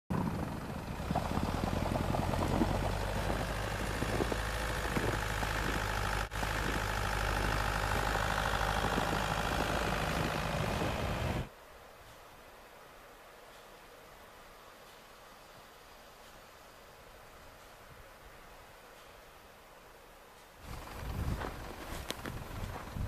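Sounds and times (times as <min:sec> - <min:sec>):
suv engine running: 0:00.1 - 0:11.5, 0:20.6 - 0:23.0.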